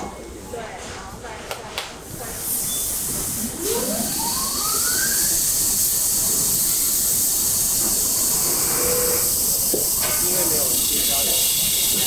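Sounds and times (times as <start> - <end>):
lathe whine rising in pitch: 3.4 - 6.9
lathe hissing: 3.4 - 12.0.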